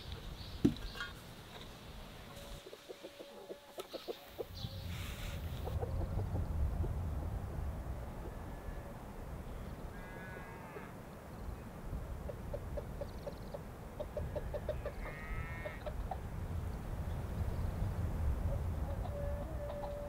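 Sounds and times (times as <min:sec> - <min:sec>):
chickens clucking: 0:00.1 - 0:06.9, 0:12.2 - 0:16.4, 0:18.4 - 0:20.0
wind rumble: 0:04.4 - 0:10.1, 0:10.9 - 0:20.0
chicken quavering calls: 0:12.3 - 0:16.2, 0:18.9 - 0:20.0.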